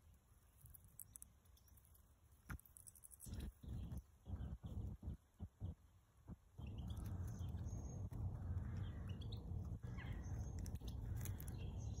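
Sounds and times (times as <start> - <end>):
small birds chirping: 0.0 - 12.0
steady low rumble: 3.5 - 12.0.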